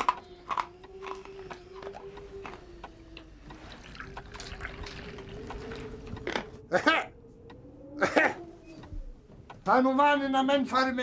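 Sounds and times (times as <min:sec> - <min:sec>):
hot drink pouring into cup: 0:03.5 - 0:06.2.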